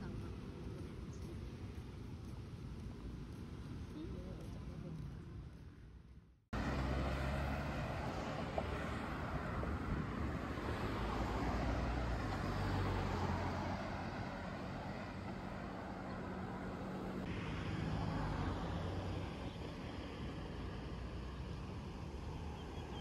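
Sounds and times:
vehicles passing: 0:00.0 - 0:23.0
low engine hum: 0:06.6 - 0:23.0.

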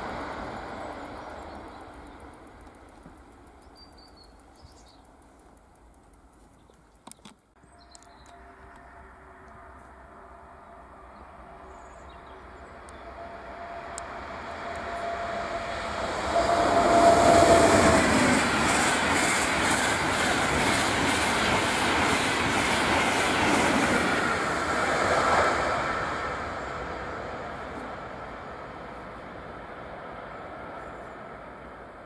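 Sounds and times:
high-speed train passing: 0:00.0 - 0:05.8, 0:07.6 - 0:32.0
train wheels rhythmic beat: 0:16.2 - 0:24.8.

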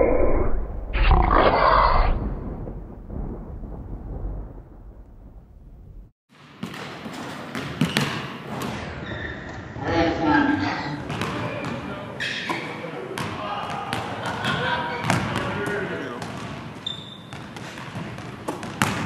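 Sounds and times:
loud low rumbling: 0:00.0 - 0:06.2
basketball bouncing on hardwood floor: 0:11.1 - 0:11.4.

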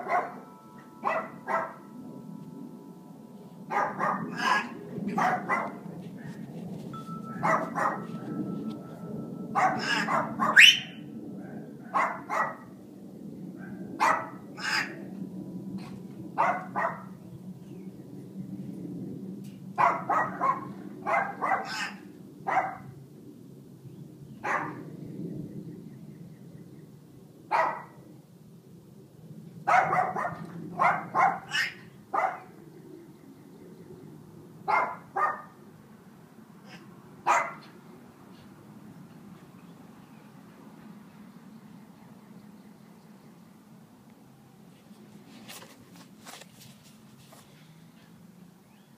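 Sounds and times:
dog barking: 0:00.0 - 0:01.9, 0:03.7 - 0:06.4, 0:07.4 - 0:08.2, 0:09.6 - 0:12.7, 0:13.6 - 0:15.0, 0:16.4 - 0:17.2, 0:19.8 - 0:22.9, 0:24.4 - 0:24.8, 0:27.5 - 0:28.0, 0:29.7 - 0:32.6, 0:34.7 - 0:35.6, 0:37.2 - 0:37.7
steady low hum: 0:00.0 - 0:19.8.

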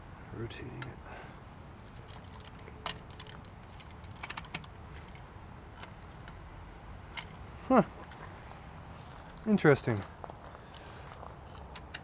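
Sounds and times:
metallic clicks from engine: 0:09.2 - 0:12.0.

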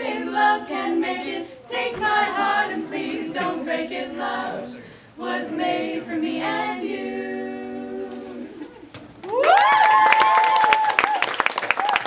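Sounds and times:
girls singing a cappella: 0:00.0 - 0:08.8.

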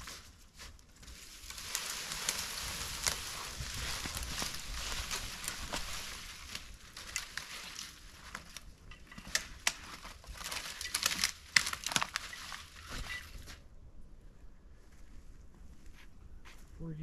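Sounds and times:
twigs snapping: 0:00.0 - 0:13.6
crunching of dry brush and snow: 0:00.0 - 0:13.8.

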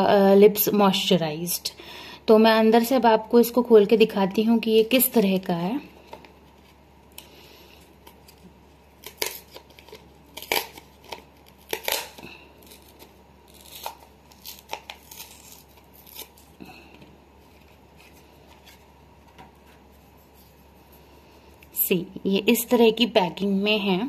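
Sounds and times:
cardboard ripping: 0:09.0 - 0:16.5.

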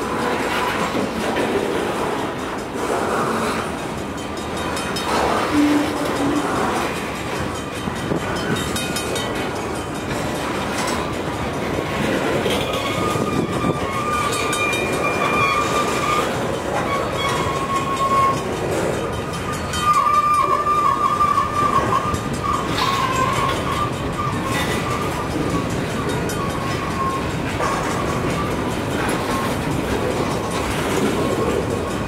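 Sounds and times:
train wheels rumbling on rails: 0:00.0 - 0:32.0
high-pitched wheel squealing: 0:05.0 - 0:07.5, 0:12.5 - 0:18.5, 0:19.5 - 0:29.7.

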